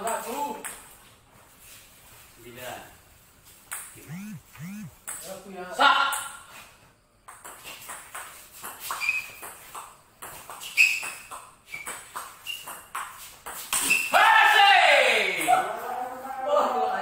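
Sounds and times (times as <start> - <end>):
ping-pong ball bouncing: 7.3 - 13.7.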